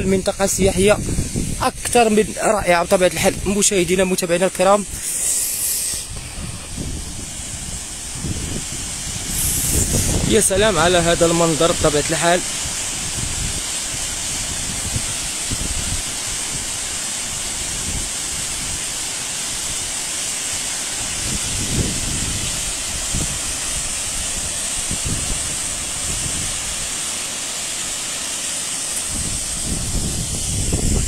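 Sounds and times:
wind buffeting microphone: 0:00.0 - 0:04.2, 0:05.9 - 0:18.9, 0:21.0 - 0:27.0, 0:29.0 - 0:31.0
waterfall rushing: 0:00.1 - 0:31.0.

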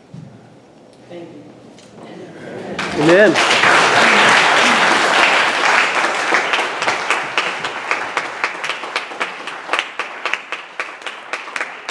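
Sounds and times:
congregation applauding: 0:02.8 - 0:11.9
rhythmic clapping: 0:02.8 - 0:11.9.

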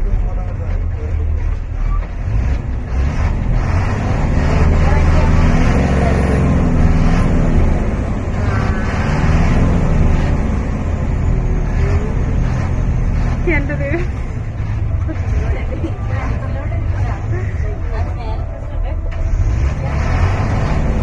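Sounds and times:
vehicle engine rumbling: 0:00.0 - 0:21.0
murmur of voices: 0:11.7 - 0:21.0.

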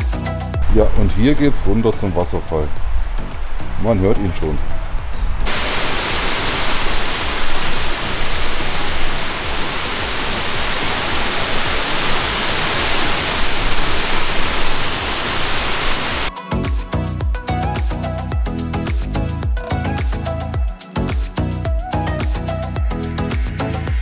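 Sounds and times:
music with a beat: 0:00.0 - 0:00.6, 0:16.3 - 0:24.0
waterfall rushing: 0:00.6 - 0:16.3.

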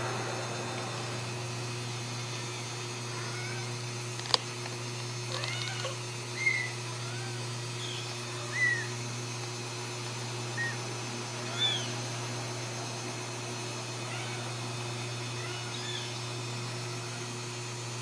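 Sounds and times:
steady low hum: 0:00.0 - 0:18.0
kittens mewing: 0:05.3 - 0:09.0, 0:14.0 - 0:17.2.

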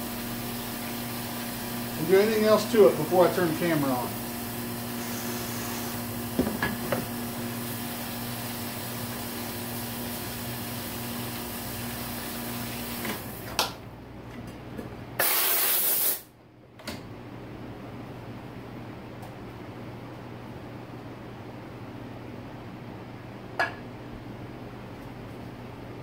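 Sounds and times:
parts washer spray hissing: 0:04.9 - 0:06.1, 0:15.2 - 0:16.3
short loud hiss: 0:15.2 - 0:16.3.

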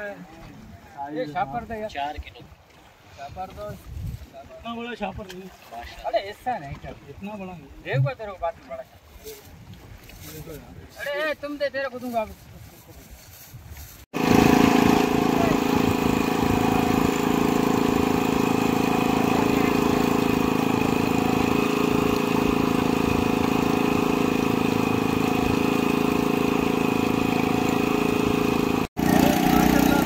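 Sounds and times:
boat engine humming: 0:14.2 - 0:30.0.

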